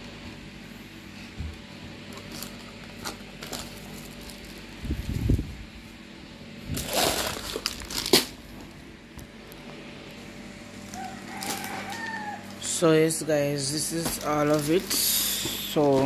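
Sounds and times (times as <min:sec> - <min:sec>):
plastic packaging rustling: 0:02.0 - 0:05.4, 0:06.6 - 0:08.8, 0:10.8 - 0:16.0.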